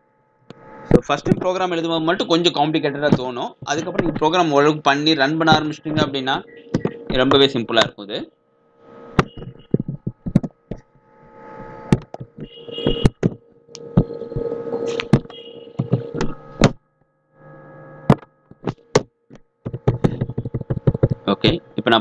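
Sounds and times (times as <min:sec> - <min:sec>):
electrical hum: 0:00.0 - 0:22.0
keyboard keystrokes: 0:19.7 - 0:21.3.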